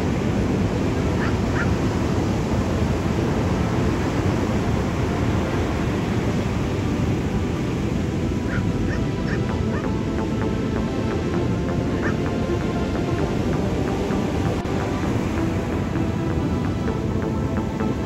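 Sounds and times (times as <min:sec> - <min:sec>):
surf crashing on a beach: 0:00.0 - 0:18.0
bird calls: 0:08.5 - 0:09.9, 0:12.0 - 0:12.2.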